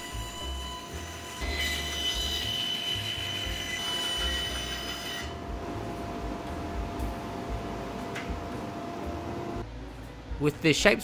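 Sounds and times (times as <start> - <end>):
bandsaw humming: 0.0 - 5.9.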